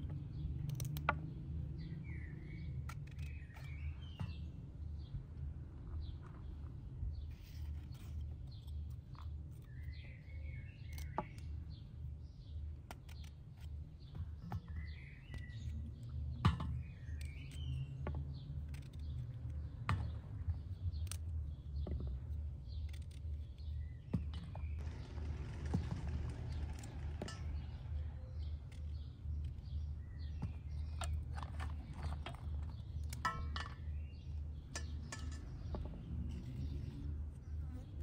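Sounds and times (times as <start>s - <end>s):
small birds chirping: 0.0s - 38.0s
knife clicking through stems: 0.6s - 1.1s, 17.0s - 19.8s
low steady rumble: 24.8s - 33.4s.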